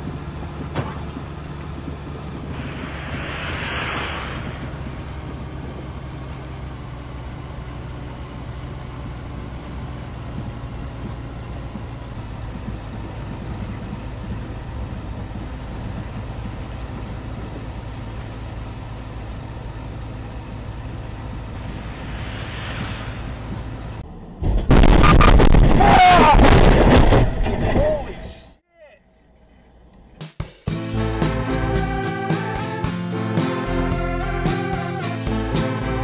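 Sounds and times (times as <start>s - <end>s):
car road and engine noise: 0.0s - 25.8s, 29.6s - 36.0s.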